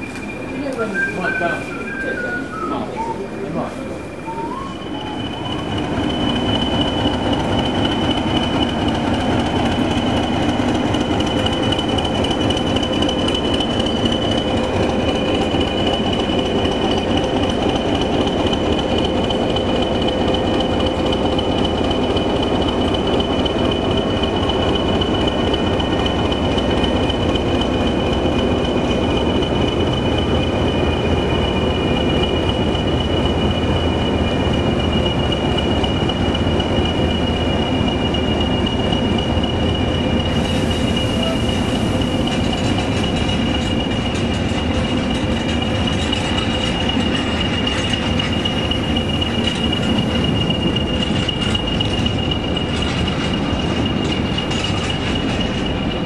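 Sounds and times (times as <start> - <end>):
diesel locomotives rumbling: 0.0 - 56.0.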